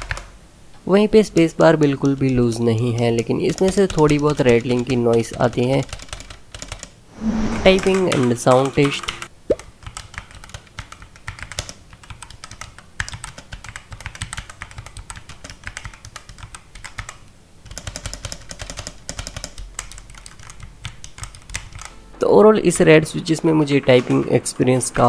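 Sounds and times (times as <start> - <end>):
mechanical keyboard typing: 1.8 - 7.0, 7.8 - 22.0.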